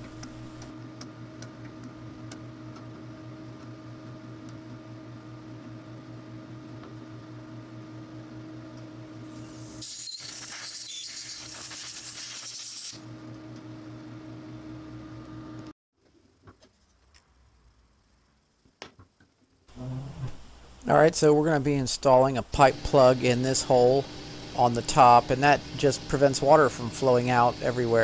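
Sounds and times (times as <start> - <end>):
machine hum: 0.0 - 0.8, 19.6 - 28.0
spray hissing: 9.7 - 13.0, 22.6 - 28.0.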